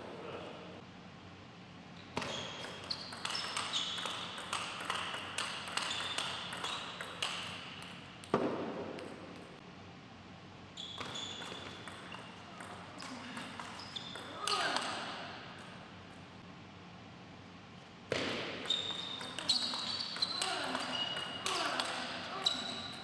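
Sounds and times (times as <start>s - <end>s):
table tennis ball clicking: 2.6s - 8.4s.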